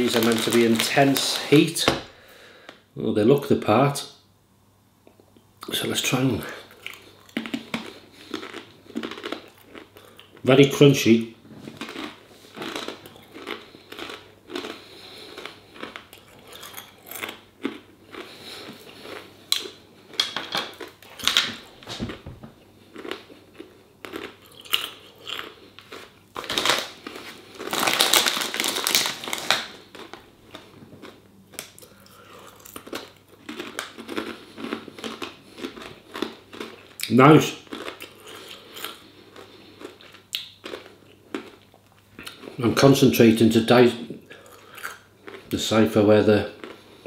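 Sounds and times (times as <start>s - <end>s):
person chewing crunchy chips: 0.0s - 1.7s, 6.5s - 10.8s, 11.6s - 42.7s, 44.3s - 45.8s, 46.4s - 47.0s
foil snack bag crinkling: 0.0s - 1.9s, 11.8s - 21.8s, 22.9s - 31.2s.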